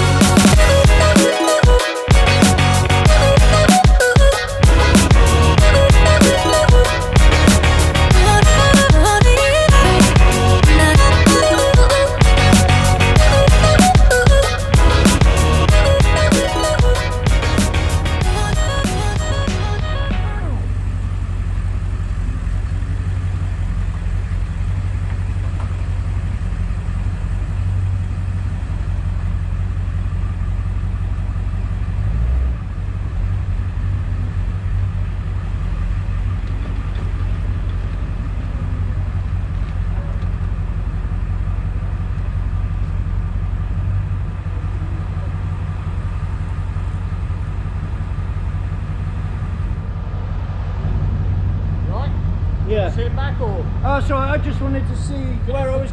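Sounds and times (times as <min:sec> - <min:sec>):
pickup truck engine rumbling: 0:00.0 - 0:55.9
low bump: 0:47.8 - 0:55.1.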